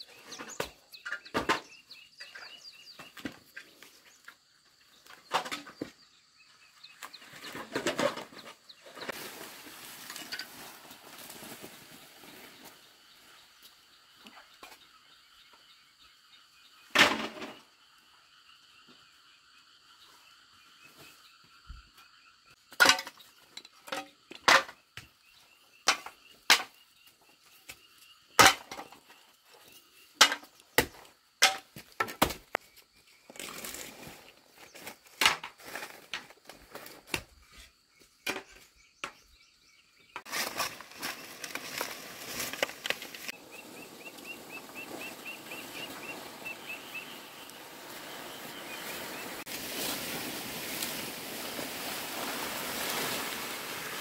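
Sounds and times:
dry leaves rustling and dragged: 0:08.9 - 0:13.4, 0:40.3 - 0:54.0.

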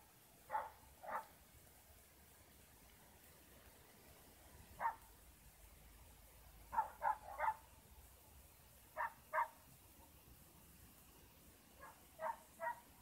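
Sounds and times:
dog barking: 0:00.5 - 0:01.4, 0:04.8 - 0:05.1, 0:06.7 - 0:07.6, 0:09.0 - 0:09.6, 0:11.8 - 0:12.9.

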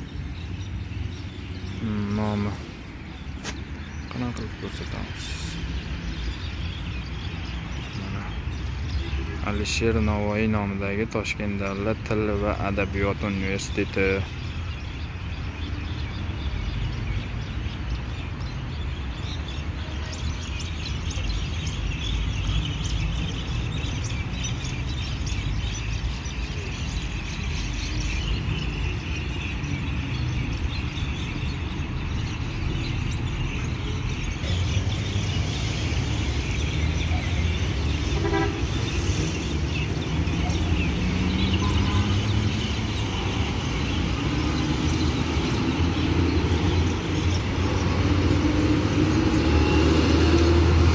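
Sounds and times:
city traffic: 0:00.0 - 0:50.9
vehicle engine accelerating: 0:47.5 - 0:50.9.

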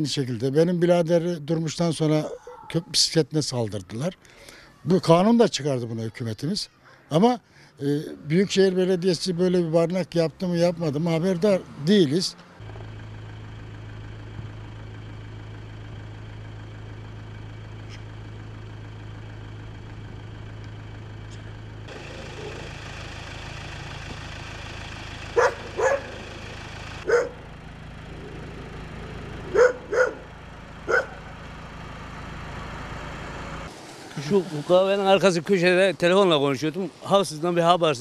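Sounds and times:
dog barking: 0:02.2 - 0:02.8, 0:25.4 - 0:26.2, 0:27.0 - 0:27.4, 0:29.5 - 0:30.3, 0:30.9 - 0:31.3.

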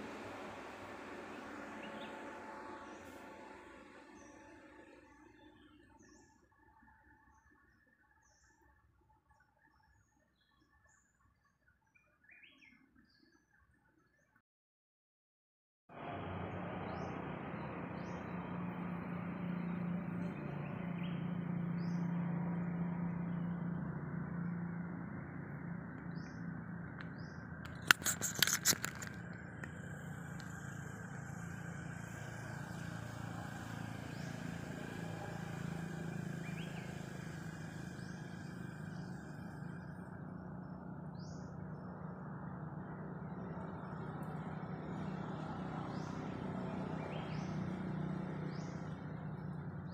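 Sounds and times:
outdoor background rumble: 0:00.0 - 0:08.4, 0:15.9 - 0:49.9
sharp clicks: 0:26.9 - 0:31.2.

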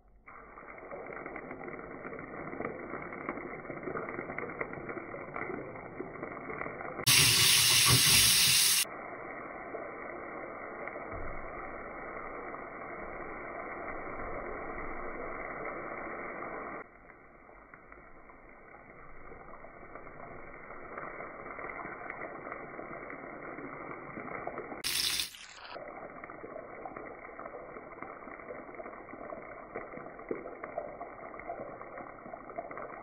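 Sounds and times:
garlic sizzling in oil: 0:00.3 - 0:33.0.

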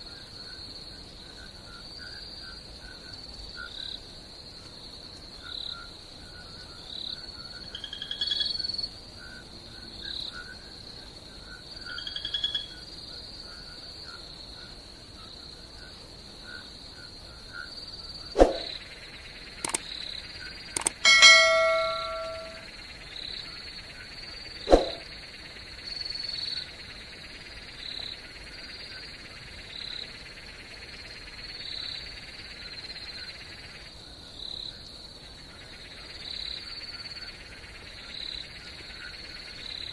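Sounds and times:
bell-like ding: 0:20.8 - 0:22.6.

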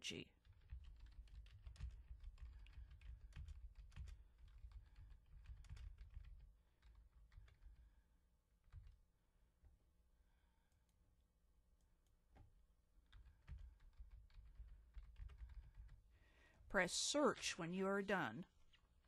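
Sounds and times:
typing on computer keyboard: 0:00.4 - 0:07.9, 0:08.6 - 0:09.0, 0:12.3 - 0:16.1.

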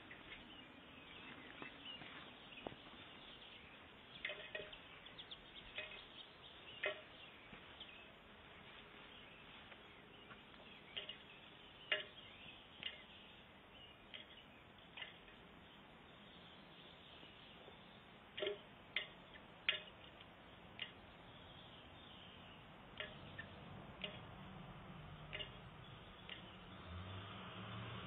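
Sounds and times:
steady low hiss: 0:00.0 - 0:28.0
bird beak tapping on wheel: 0:04.1 - 0:07.2, 0:10.8 - 0:13.3, 0:14.0 - 0:15.5, 0:18.3 - 0:21.2, 0:22.9 - 0:26.7.

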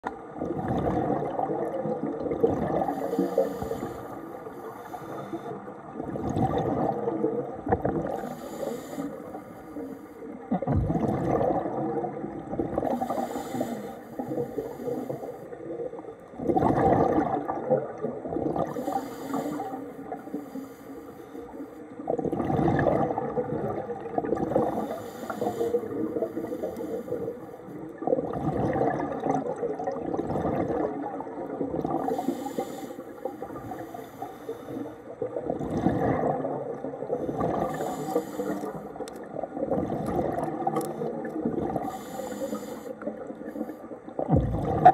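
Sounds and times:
exhaust bubbles underwater: 0:00.0 - 0:20.6, 0:21.9 - 0:34.0, 0:34.6 - 0:44.9
regulator hiss on inhale: 0:02.8 - 0:05.8, 0:08.1 - 0:10.3, 0:12.9 - 0:15.6, 0:18.7 - 0:21.9, 0:24.6 - 0:27.8, 0:32.0 - 0:35.0, 0:37.2 - 0:39.1, 0:41.8 - 0:44.0.

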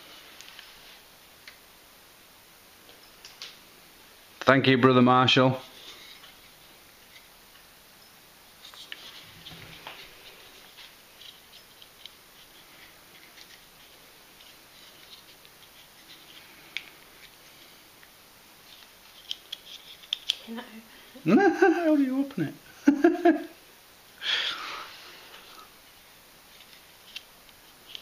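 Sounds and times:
folding knife clicks and scrapes: 0:19.1 - 0:20.4.

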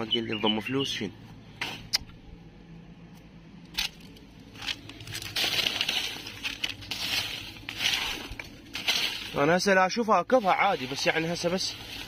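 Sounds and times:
dry debris rustling and crackling: 0:03.7 - 0:12.0.

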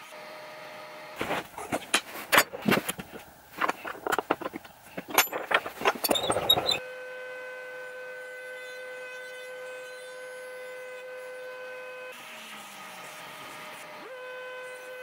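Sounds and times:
wrenches clinking on metal: 0:01.2 - 0:06.8.

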